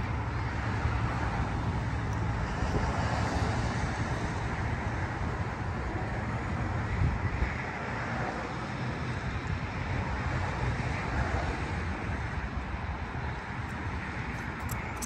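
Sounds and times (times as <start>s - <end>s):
highway traffic noise: 0.0s - 15.0s
wind on microphone: 0.7s - 7.9s.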